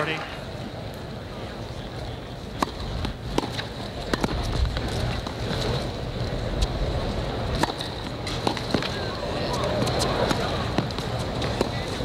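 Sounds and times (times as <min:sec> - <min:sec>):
stadium crowd noise: 0:00.0 - 0:12.0
racket hitting tennis ball: 0:02.6 - 0:05.8, 0:07.5 - 0:12.0.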